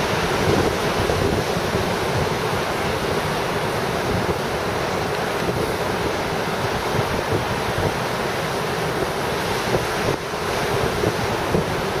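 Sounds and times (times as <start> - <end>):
surf washing over rocks: 0.0 - 12.0
wind buffeting microphone: 0.0 - 12.0.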